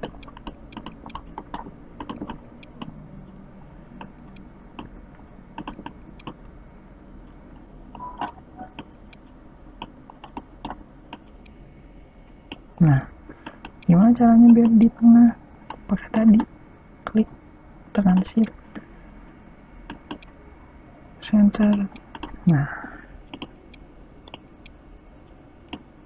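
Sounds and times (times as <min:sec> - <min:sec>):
keyboard and mouse clicking: 0:00.0 - 0:03.0, 0:05.6 - 0:06.4, 0:09.8 - 0:11.6, 0:14.5 - 0:14.9, 0:19.9 - 0:20.3, 0:21.7 - 0:22.5, 0:23.3 - 0:24.8, 0:25.7 - 0:25.9.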